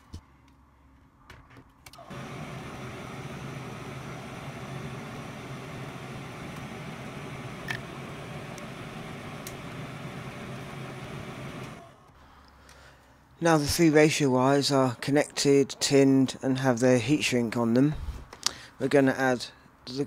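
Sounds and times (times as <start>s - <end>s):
extractor fan humming: 2.0s - 12.1s.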